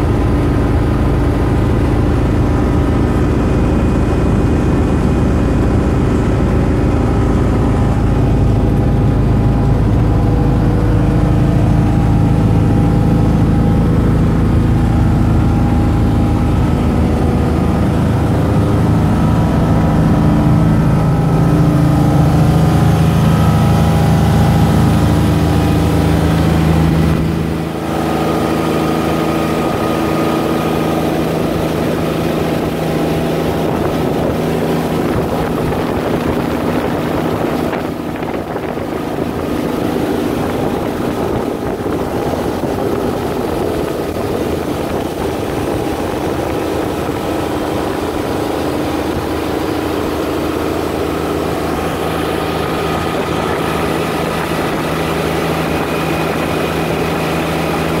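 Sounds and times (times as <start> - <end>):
motorboat engine droning: 0.0 - 58.0
rushing water: 0.0 - 58.0
wind: 0.0 - 58.0.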